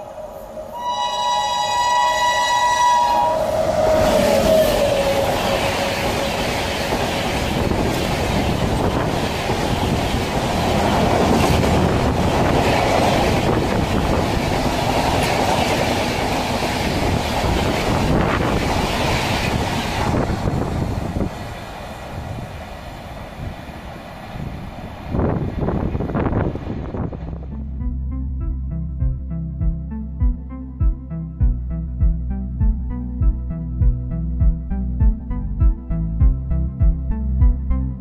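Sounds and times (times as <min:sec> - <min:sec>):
train horn: 0:00.0 - 0:07.7
train coaches clacking on rails: 0:03.5 - 0:26.0.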